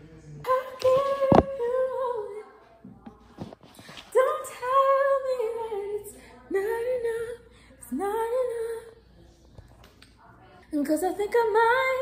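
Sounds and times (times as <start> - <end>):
woman singing unaccompanied: 0.4 - 2.7, 3.9 - 9.0, 10.7 - 12.0.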